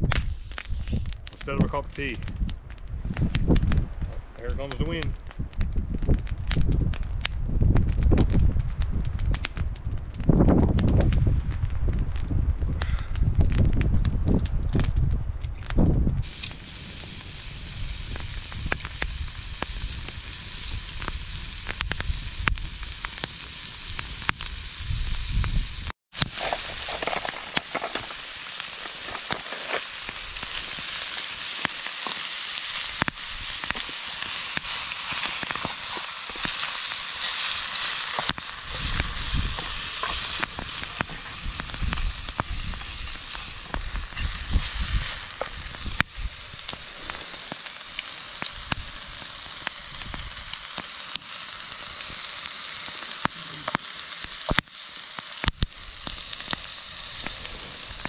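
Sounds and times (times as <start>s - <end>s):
bacon sizzling in a pan: 16.2s - 58.0s
sharp pops: 26.2s - 49.0s, 52.1s - 58.0s.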